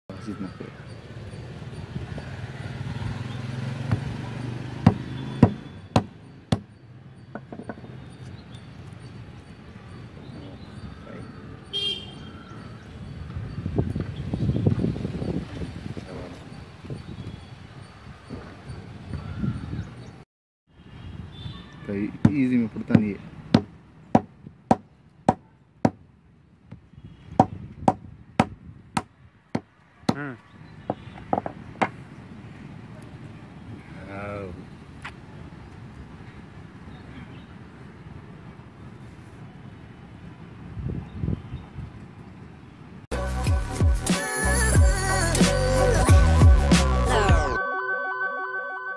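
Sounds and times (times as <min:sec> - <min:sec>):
stone knocking on a nut: 0:04.9 - 0:06.7, 0:07.3 - 0:07.9, 0:22.2 - 0:24.8, 0:30.9 - 0:32.0.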